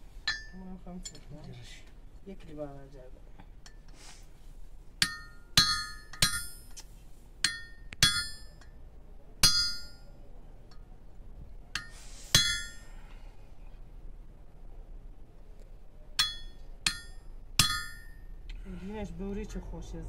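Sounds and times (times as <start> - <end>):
hammer striking steel: 0.2 - 0.6, 5.0 - 6.7, 7.4 - 8.7, 9.4 - 10.1, 11.8 - 12.9, 16.2 - 18.2.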